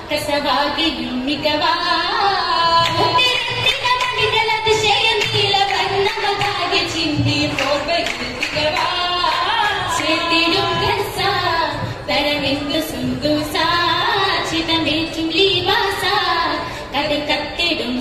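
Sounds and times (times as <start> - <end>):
group of women singing: 0.0 - 18.0
hand claps: 2.8 - 10.9.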